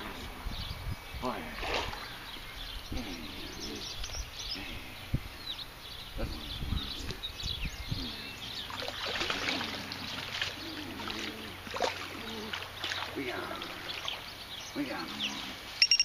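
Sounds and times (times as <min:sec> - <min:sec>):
small birds chirping: 0:00.0 - 0:16.0
water sloshing and trickling: 0:01.2 - 0:02.7, 0:08.0 - 0:15.8.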